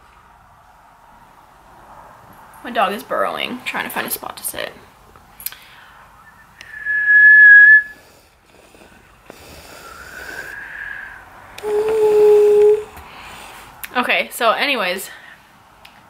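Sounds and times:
woman whistling: 0:06.2 - 0:08.0, 0:10.5 - 0:12.9.

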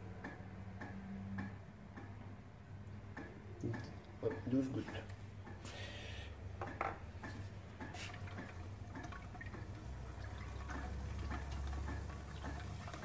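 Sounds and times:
low steady hum: 0:00.0 - 0:13.0
liquid swishing: 0:07.8 - 0:13.0.

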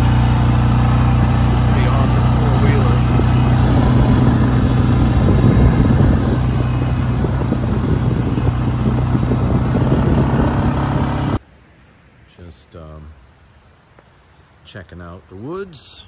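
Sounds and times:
atv engine running: 0:00.0 - 0:11.4.

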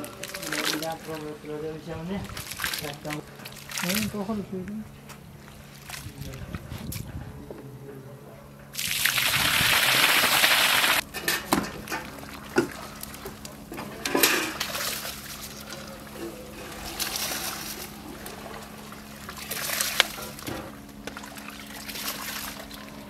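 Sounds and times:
sloshing in a pot: 0:00.0 - 0:04.4, 0:08.7 - 0:23.0
liquid pouring into a cauldron: 0:08.8 - 0:11.0.

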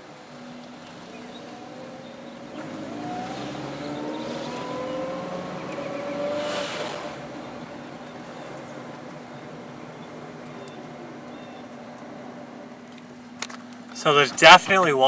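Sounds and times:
car engine accelerating: 0:00.3 - 0:14.6.

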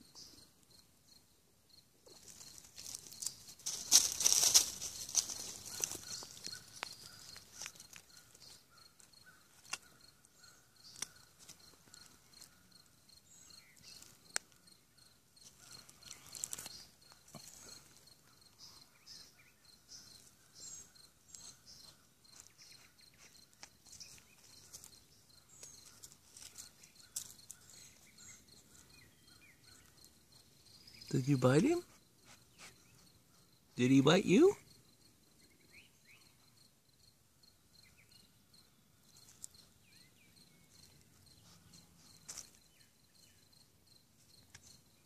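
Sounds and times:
insect chirping: 0:00.0 - 0:45.0
rustles in dry leaves: 0:02.1 - 0:10.0, 0:15.4 - 0:18.0, 0:20.0 - 0:28.9
bird chirps: 0:05.0 - 0:34.5, 0:35.3 - 0:36.6.

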